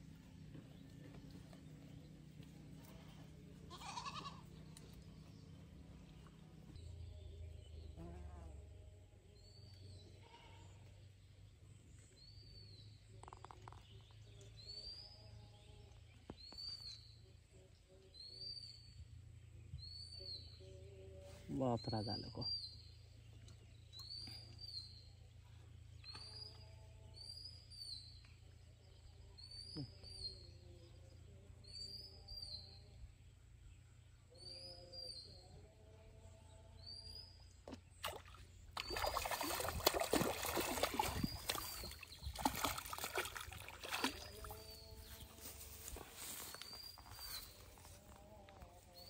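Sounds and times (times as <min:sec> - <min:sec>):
birds chirping: 0:36.4 - 0:49.0
fish splashing in water: 0:38.0 - 0:44.7
lower bird calls: 0:38.8 - 0:49.0.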